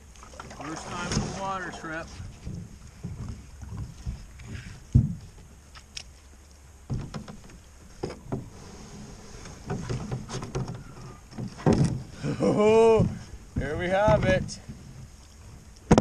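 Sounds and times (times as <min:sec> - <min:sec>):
knocks on canoe hull: 0:02.4 - 0:05.3, 0:06.9 - 0:07.4.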